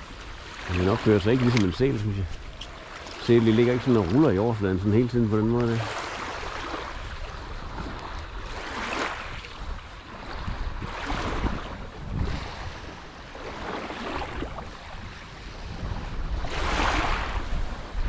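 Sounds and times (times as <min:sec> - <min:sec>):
small waves washing onto shore: 0:00.0 - 0:18.0
wind rumbling on microphone: 0:00.0 - 0:18.0.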